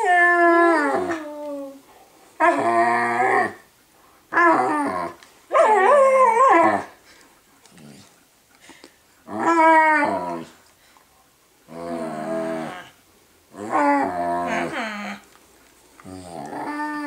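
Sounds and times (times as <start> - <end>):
puppy moaning: 11.7 - 15.2, 16.0 - 17.0.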